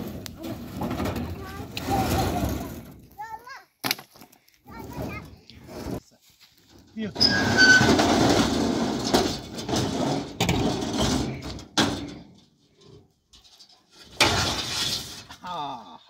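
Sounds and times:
sheet scraping across truck bed: 0.0 - 3.0, 4.8 - 6.0, 7.2 - 11.7
short squeaks: 7.2 - 8.1.

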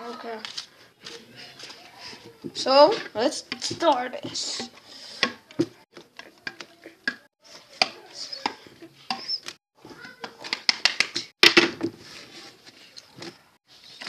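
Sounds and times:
cards rustling: 0.0 - 2.4.

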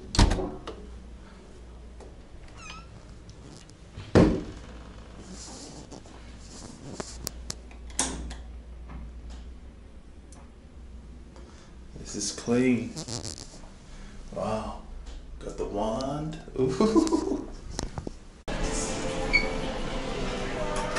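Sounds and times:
fridge door thumping shut: 4.1 - 4.5
short squeak: 12.9 - 13.6.

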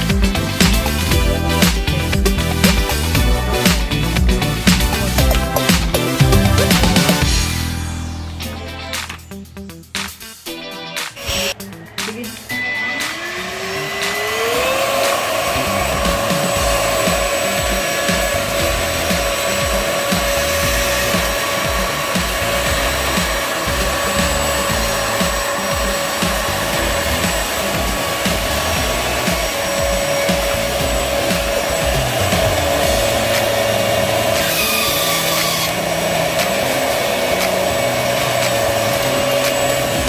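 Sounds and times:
vacuum motor whining: 12.4 - 40.0.

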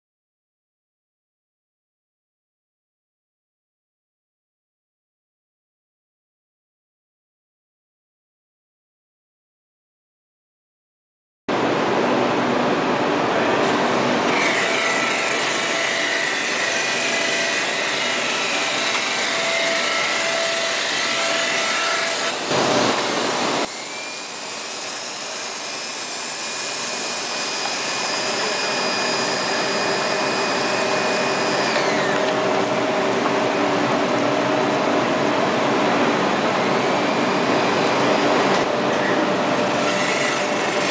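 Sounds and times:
wrapping machine mechanical drone: 11.5 - 40.9.

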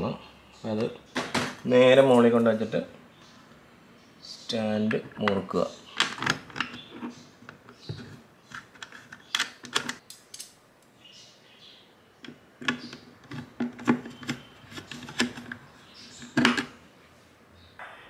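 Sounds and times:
clicks and scrapes of metal on plastic: 6.0 - 10.0, 12.2 - 16.7.

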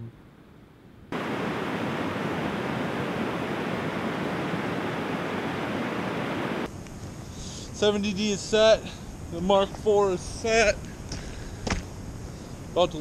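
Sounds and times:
white-water rapids rushing: 1.2 - 6.7.

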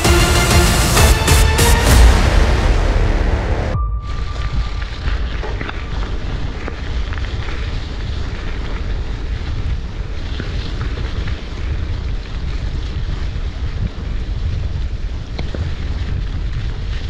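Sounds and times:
wind buffeting microphone: 4.0 - 17.0
bicycle tyres rolling on gravel: 4.6 - 17.0.

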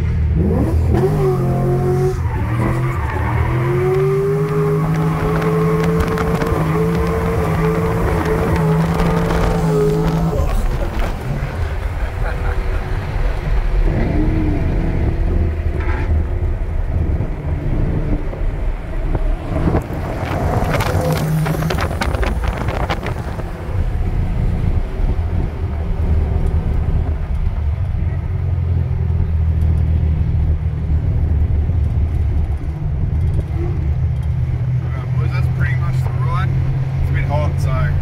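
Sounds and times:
car engine under load: 0.0 - 38.0.

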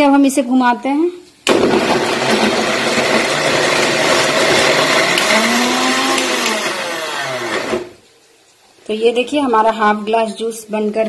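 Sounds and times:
mixer grinder motor running: 1.7 - 8.0.

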